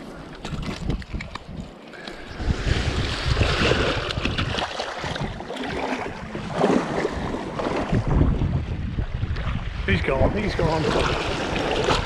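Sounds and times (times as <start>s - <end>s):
small waves splashing: 0.0s - 12.0s
wind buffeting the microphone: 0.0s - 12.0s
feet wading through surf: 1.8s - 8.4s, 10.4s - 12.0s.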